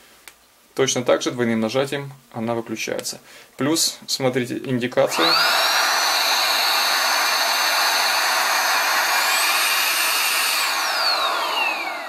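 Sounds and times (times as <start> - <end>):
handheld vacuum cleaner running: 5.0 - 12.0.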